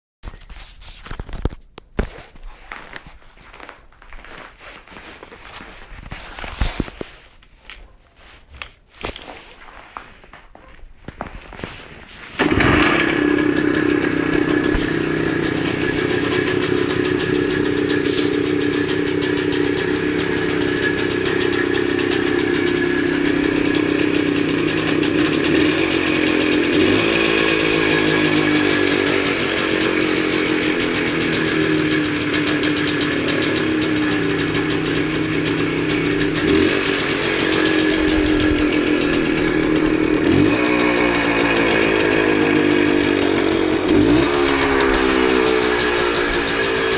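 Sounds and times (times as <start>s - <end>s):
motorcycle engine running: 12.4s - 46.9s
motorcycle throttle blips: 12.4s - 46.9s.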